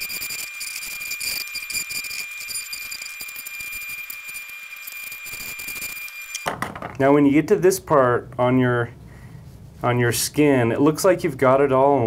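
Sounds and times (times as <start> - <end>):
electric hair clippers whining: 0.0 - 6.5.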